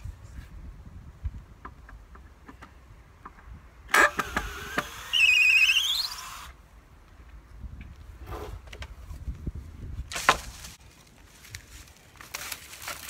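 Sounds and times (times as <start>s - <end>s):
nail squealing out of wood: 3.9s - 6.5s.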